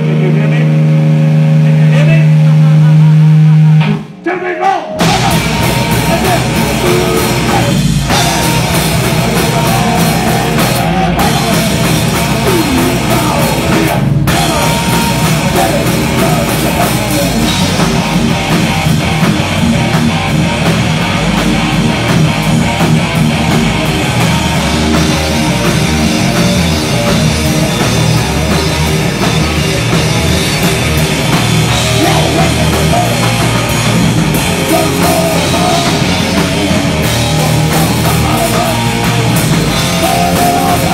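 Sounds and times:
amplified electric guitars: 0:04.9 - 0:40.9
pounding drum kit: 0:04.9 - 0:40.9.

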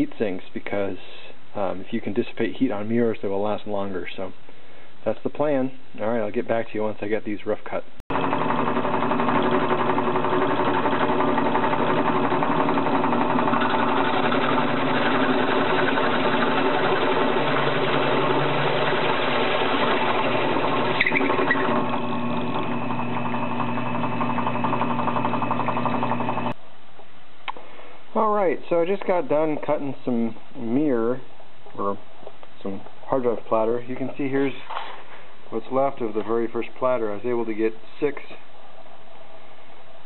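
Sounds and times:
hole saw cutting through metal: 0:08.1 - 0:25.8
drill press motor hum: 0:08.1 - 0:26.6.

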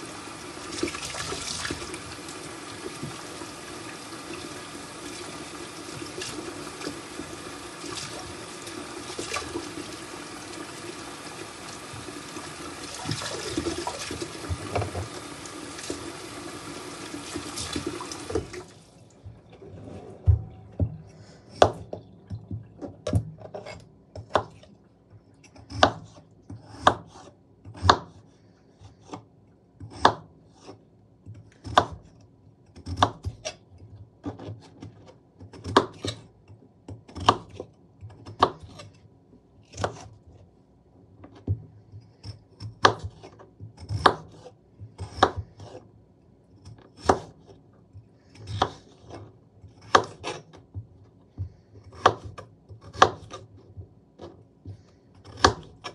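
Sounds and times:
knife cutting potatoes: 0:25.4 - 0:30.8, 0:31.6 - 0:32.1, 0:32.7 - 0:33.6, 0:36.9 - 0:39.0, 0:39.7 - 0:40.3, 0:42.1 - 0:45.9, 0:46.6 - 0:47.6, 0:48.3 - 0:50.8, 0:51.8 - 0:53.6, 0:54.2 - 0:55.9.

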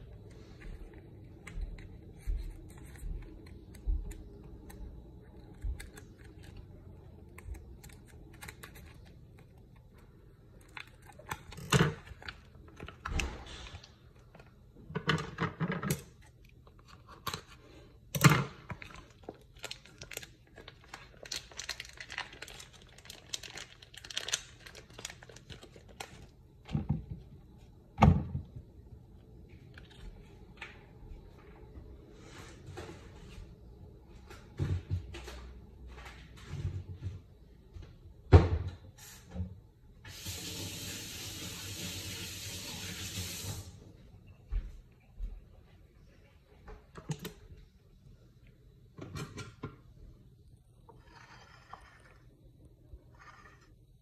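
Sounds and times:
plastic packaging crinkling: 0:18.7 - 0:26.4.

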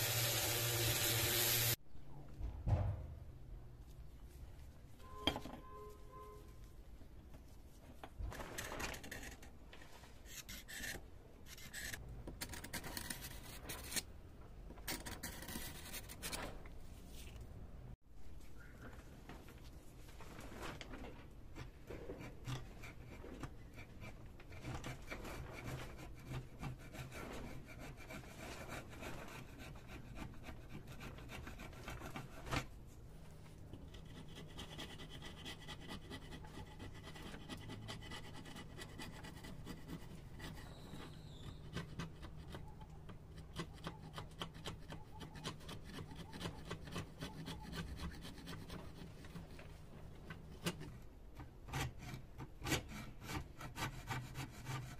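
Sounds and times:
chisel scraping metal: 0:33.9 - 0:49.7.

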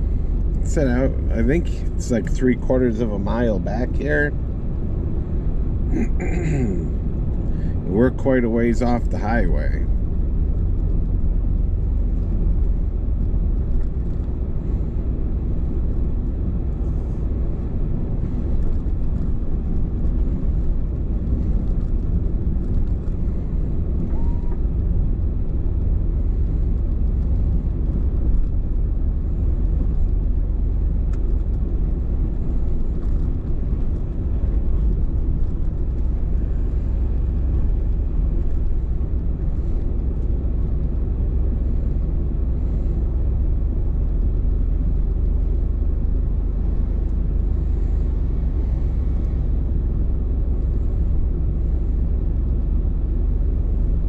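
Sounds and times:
vehicle engine and tyre rumble: 0:00.0 - 0:54.0.

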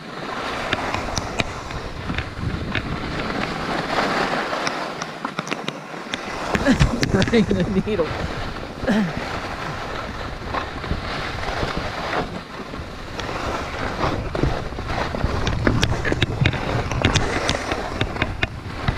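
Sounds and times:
wind rushing across microphone: 0:00.0 - 0:05.0, 0:06.1 - 0:18.9
skis scraping over packed snow: 0:00.0 - 0:18.9
sharp clicks and scrapes: 0:00.6 - 0:07.6, 0:15.2 - 0:18.9.

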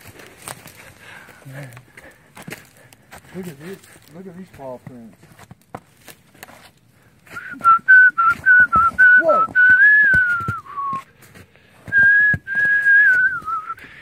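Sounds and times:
loud whistling: 0:07.4 - 0:11.0, 0:11.9 - 0:13.8.

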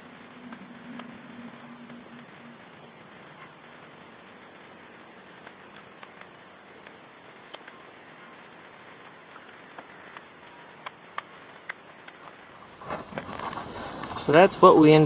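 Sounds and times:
footsteps through grass and twigs: 0:05.5 - 0:14.4.

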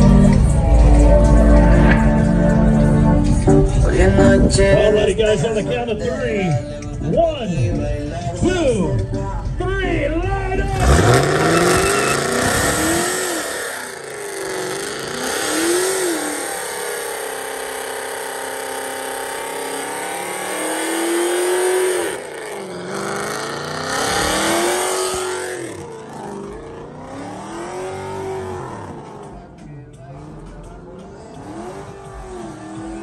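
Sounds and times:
car engine revving: 0:00.0 - 0:05.8, 0:10.5 - 0:33.0
spinning tyres hissing: 0:10.8 - 0:29.4.

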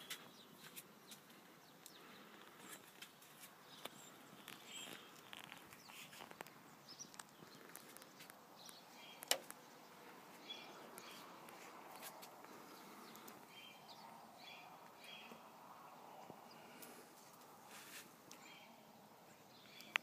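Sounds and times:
faint bird chirps: 0:00.0 - 0:15.5.

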